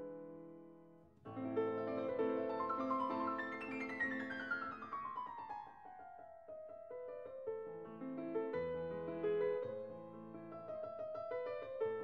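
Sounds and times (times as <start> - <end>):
piano music: 1.3 - 12.0.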